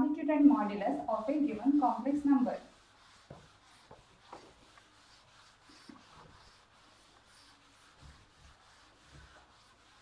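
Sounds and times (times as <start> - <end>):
duster rubbing whiteboard: 0.5 - 10.0.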